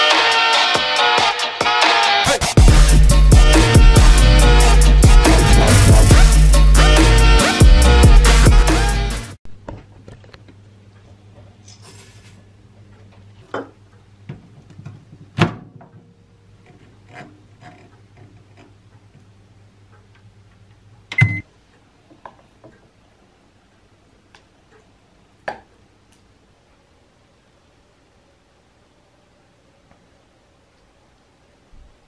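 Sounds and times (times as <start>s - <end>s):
short beep: 21.2s - 21.4s.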